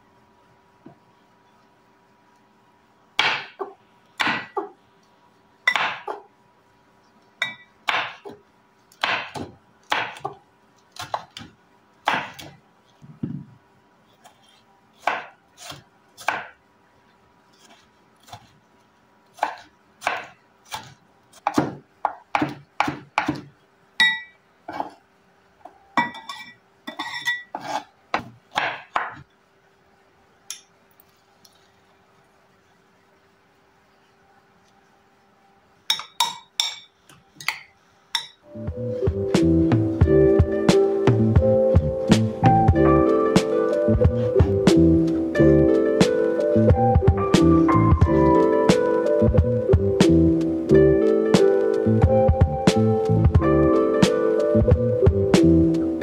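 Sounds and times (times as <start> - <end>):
knife chopping on wooden board: 3.2 - 4.7, 5.7 - 6.2, 7.9 - 8.4, 9.0 - 10.4, 11.0 - 12.6, 15.0 - 16.6, 19.4 - 23.5.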